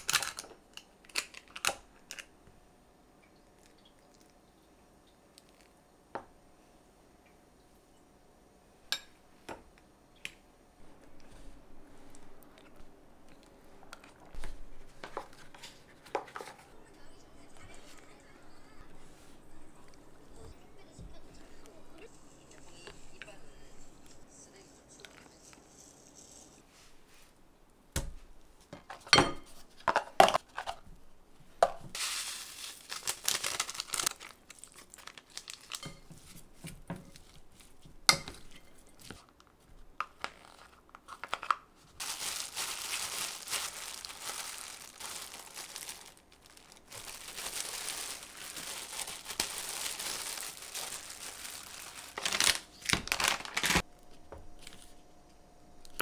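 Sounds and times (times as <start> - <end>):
packaging crinkling: 0.0 - 2.3, 32.0 - 36.1, 40.1 - 53.9.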